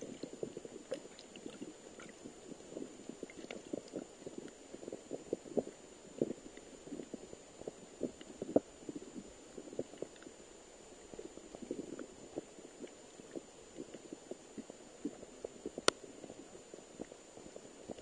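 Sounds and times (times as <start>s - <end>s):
faint high whine: 0.0s - 18.0s.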